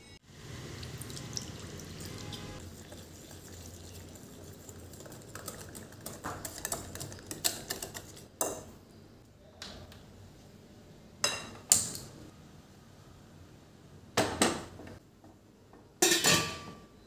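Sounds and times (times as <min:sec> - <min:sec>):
water pouring into a bowl: 0:00.5 - 0:05.9
whisk clicking against a bowl: 0:04.8 - 0:08.3.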